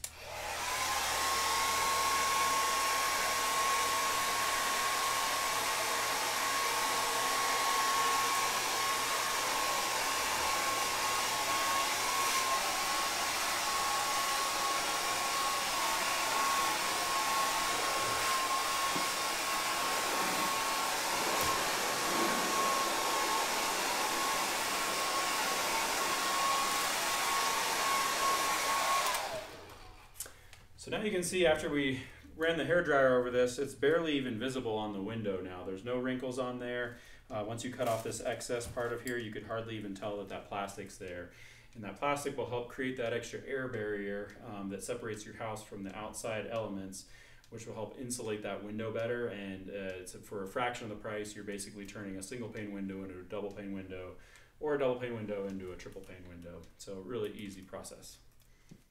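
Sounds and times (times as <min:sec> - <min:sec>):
hair dryer running: 0:00.0 - 0:30.2.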